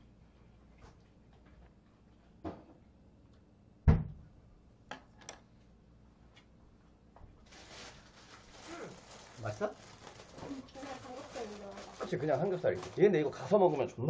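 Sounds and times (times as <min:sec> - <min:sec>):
rustling: 0:07.4 - 0:13.6.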